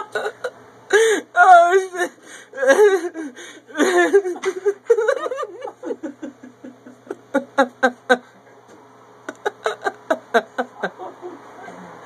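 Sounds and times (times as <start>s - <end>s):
person laughing: 0.0s - 1.1s, 2.6s - 8.4s, 9.3s - 11.8s.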